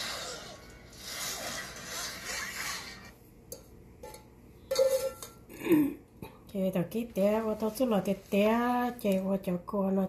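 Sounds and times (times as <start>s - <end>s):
rasping scrapes: 0.0s - 3.1s.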